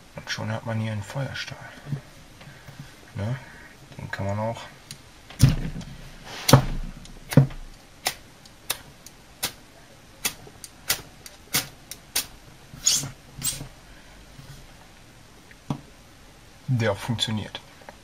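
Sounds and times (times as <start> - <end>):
metal washer scraping ferro rod: 12.8 - 13.7.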